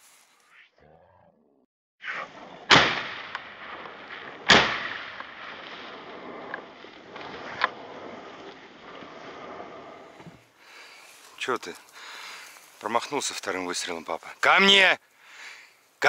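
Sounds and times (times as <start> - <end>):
shotgun shots: 2.1 - 6.5.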